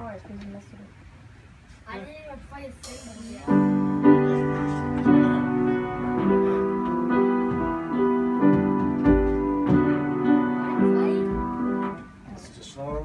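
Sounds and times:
piano chords: 2.8 - 13.0.

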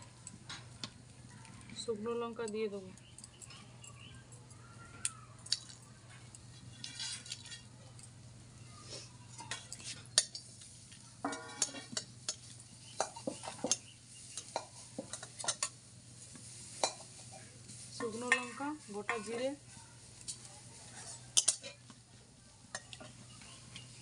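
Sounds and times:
metal spatula scraping in pan: 6.6 - 7.7, 11.2 - 15.8, 16.6 - 21.8.

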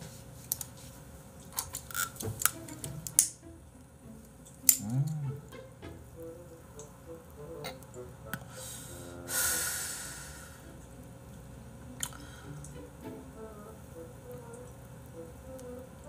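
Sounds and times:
faint background music: 0.0 - 16.0
person inhaling with soft hiss: 8.4 - 10.8, 12.0 - 12.7
person exhaling loudly: 8.5 - 10.7.

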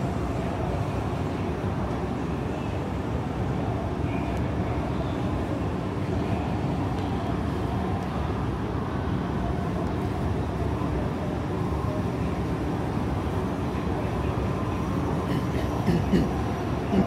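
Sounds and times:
station hall low rumble: 0.0 - 17.0.

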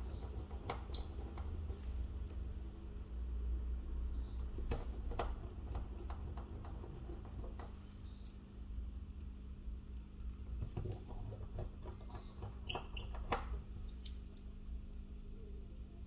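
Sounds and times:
steady low hum: 13.2 - 16.0.

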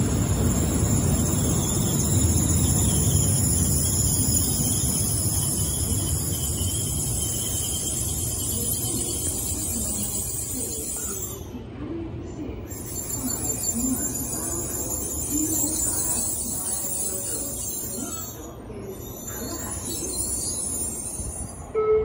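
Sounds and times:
train wheels rumbling on rails: 0.0 - 11.5, 12.6 - 21.7
high train whine: 0.0 - 22.0.

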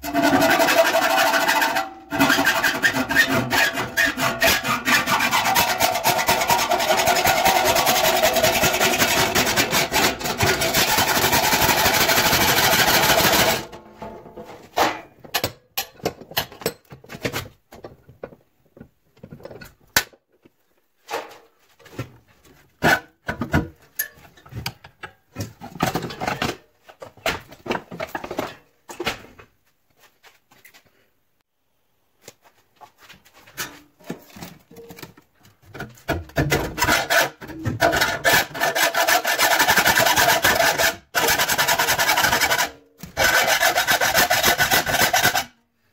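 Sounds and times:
hacksaw rasping through sheet metal: 0.0 - 13.8, 36.3 - 45.6.

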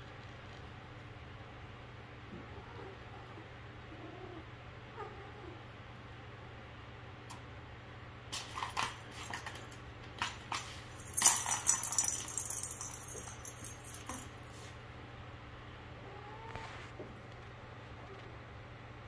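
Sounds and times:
plastic cat toy rattling: 8.4 - 14.3.

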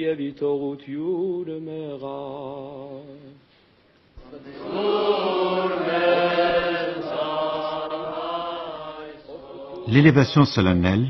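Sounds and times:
choir singing: 4.2 - 10.4.

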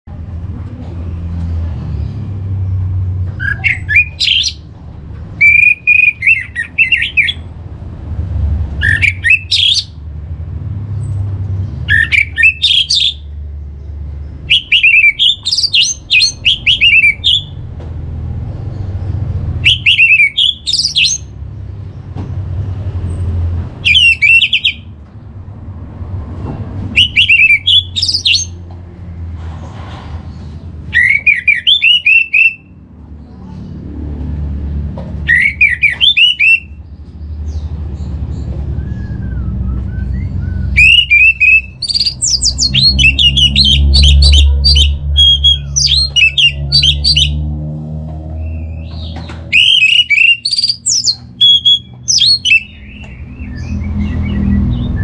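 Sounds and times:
bird singing whistles and trills: 3.4 - 4.6, 5.4 - 7.4, 8.8 - 9.9, 11.9 - 13.2, 14.4 - 17.6, 19.6 - 21.3, 23.8 - 24.8, 27.0 - 28.6, 30.9 - 32.8, 35.3 - 36.8, 38.7 - 47.4, 48.4 - 55.0.

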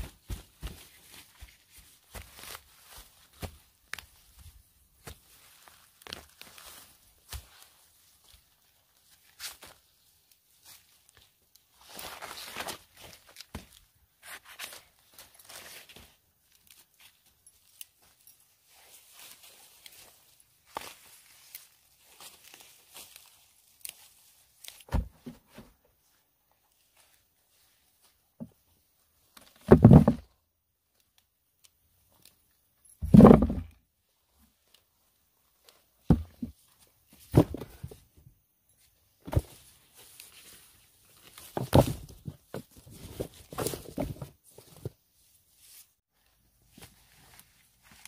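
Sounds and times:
rustling: 0.0 - 28.2, 38.8 - 48.0.

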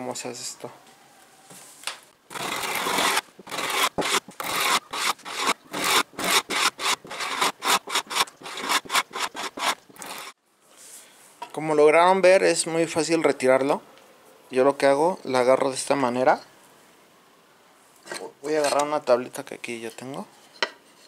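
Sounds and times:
chisel scraping wood finish: 2.3 - 10.4.

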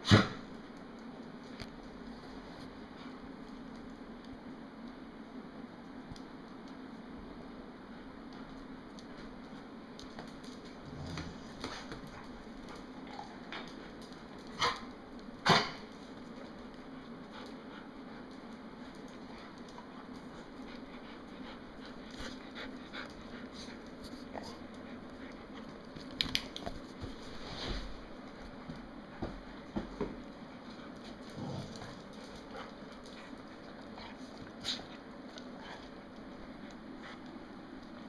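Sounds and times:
steady low hum: 0.0 - 38.0
dog claws clicking on tile: 21.8 - 27.1.

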